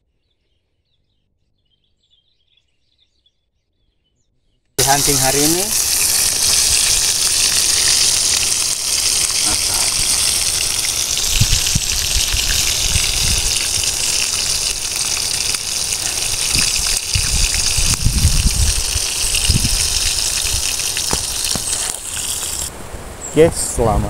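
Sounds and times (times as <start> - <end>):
meat sizzling in a pan: 4.8 - 22.7.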